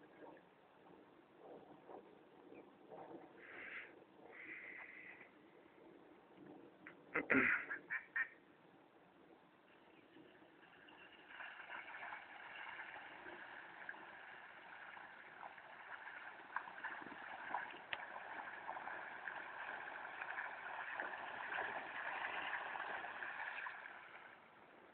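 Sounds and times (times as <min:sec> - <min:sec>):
floodwater running and gurgling: 0:10.2 - 0:24.9
small splashes: 0:10.6 - 0:24.7.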